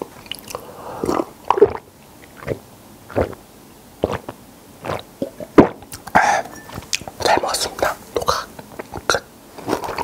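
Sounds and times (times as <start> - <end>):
person gulping loudly: 0.3 - 3.4, 4.0 - 6.5.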